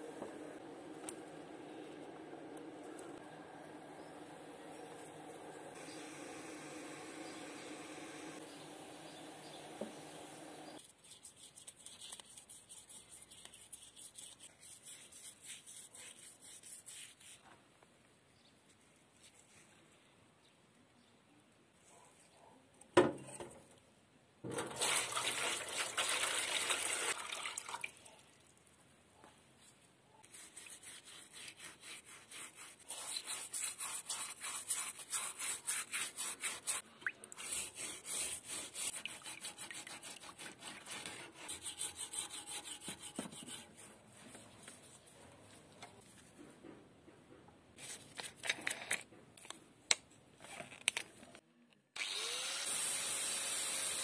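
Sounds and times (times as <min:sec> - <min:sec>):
scrubbing strokes: 0:30.2 - 0:43.9.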